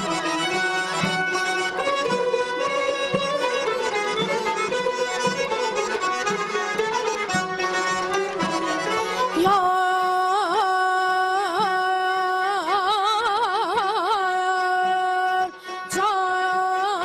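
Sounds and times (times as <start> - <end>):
instrumental music: 0.0 - 17.0.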